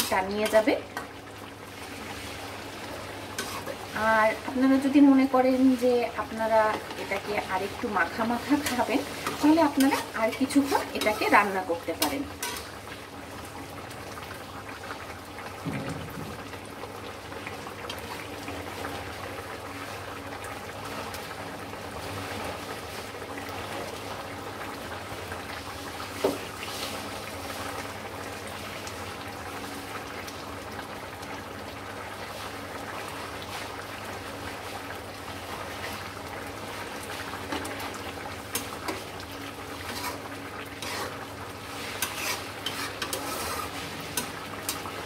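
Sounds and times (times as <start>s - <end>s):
curry bubbling in a metal pot: 0.0s - 45.0s
knock: 15.6s - 16.4s.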